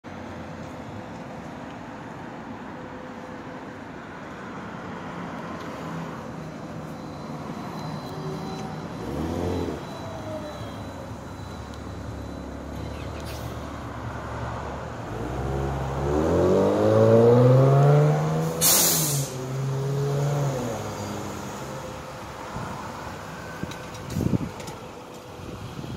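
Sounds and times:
air hiss: 0:18.6 - 0:19.4.

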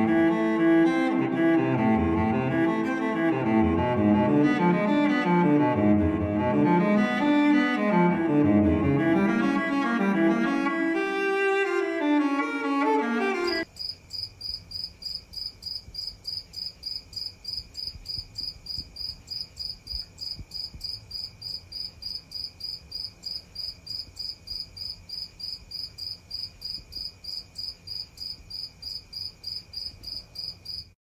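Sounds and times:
cricket chirping: 0:13.4 - 0:31.0.

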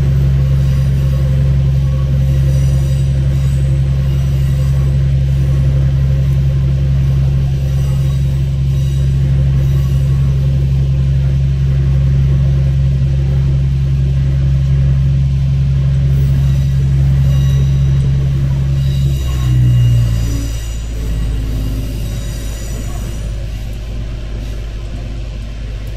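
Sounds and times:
diesel railcar engine droning: 0:00.0 - 0:25.9.

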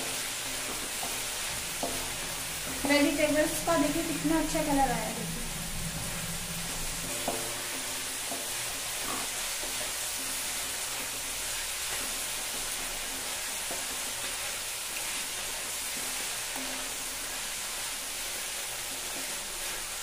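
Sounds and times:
vegetables sizzling in oil: 0:00.0 - 0:20.0.

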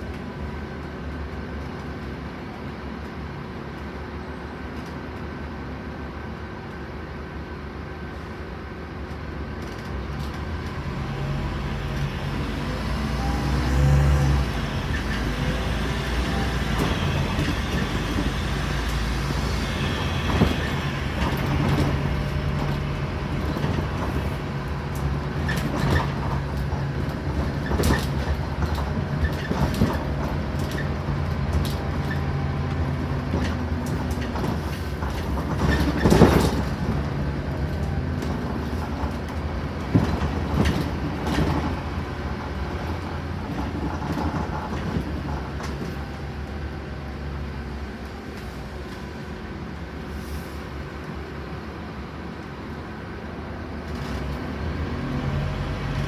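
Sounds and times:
bus diesel engine droning: 0:00.0 - 0:56.0
low road rumble: 0:00.0 - 0:56.0
bus body rattling and knocking: 0:14.4 - 0:48.3.

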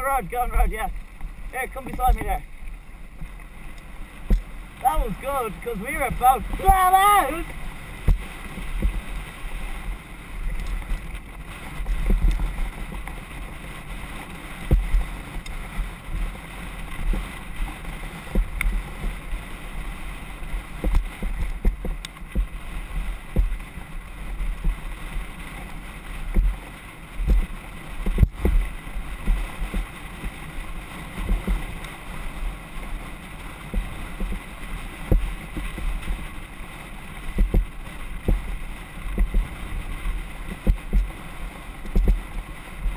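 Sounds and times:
wind buffeting microphone: 0:00.0 - 0:42.9
bike rattling over bumps: 0:09.9 - 0:19.7, 0:37.2 - 0:39.6.

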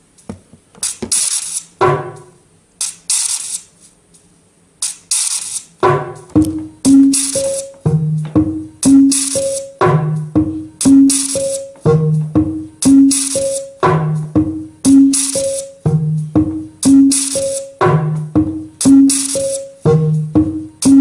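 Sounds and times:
hissy rattle-like percussion: 0:00.1 - 0:12.0
clipped synth notes: 0:05.8 - 0:21.0.

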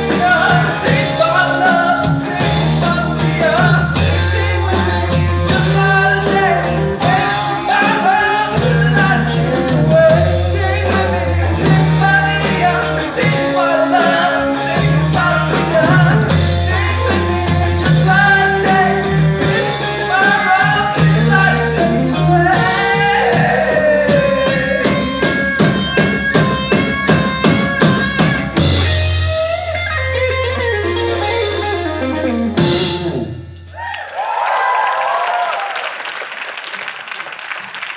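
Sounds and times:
live rock band playing: 0:00.0 - 0:33.9
crowd cheering and applause: 0:33.7 - 0:37.9.

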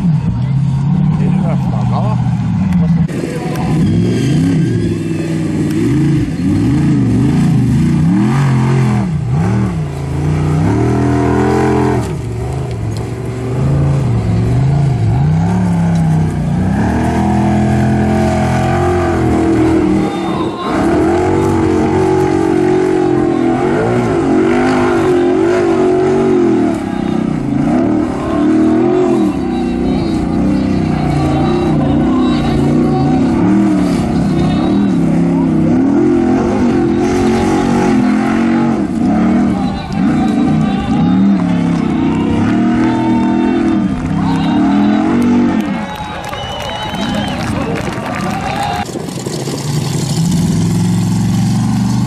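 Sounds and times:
engine revving hard: 0:03.0 - 0:52.0.

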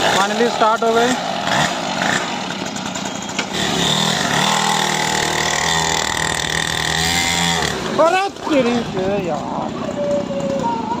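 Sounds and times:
dirt bike engine running: 0:00.0 - 0:11.0.

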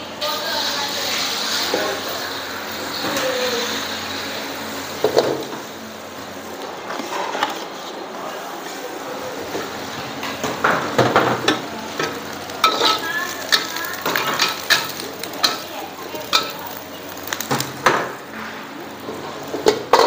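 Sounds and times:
food sizzling in a wok: 0:00.0 - 0:06.6, 0:09.0 - 0:20.0.

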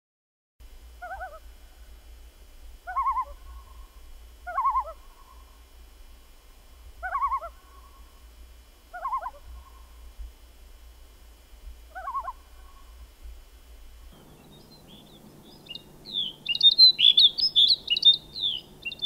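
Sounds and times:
steady low hum: 0:00.6 - 0:19.0
bird quavering call: 0:01.0 - 0:01.5, 0:02.8 - 0:05.6, 0:07.0 - 0:08.2, 0:08.9 - 0:10.0, 0:11.9 - 0:13.0, 0:14.2 - 0:19.0.

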